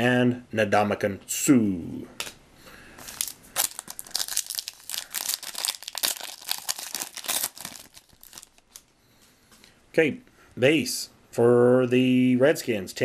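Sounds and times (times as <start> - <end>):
foil wrapper crinkling: 3.0 - 8.9.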